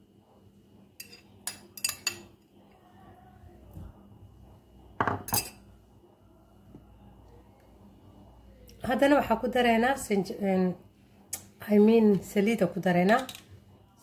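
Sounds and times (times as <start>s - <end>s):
utensil clinking on ceramic bowl: 1.0s - 2.3s, 5.0s - 5.6s.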